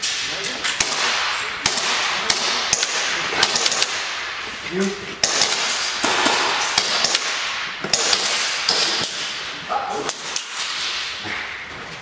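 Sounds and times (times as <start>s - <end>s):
airsoft pistols firing: 0.6s - 4.4s, 5.2s - 9.4s.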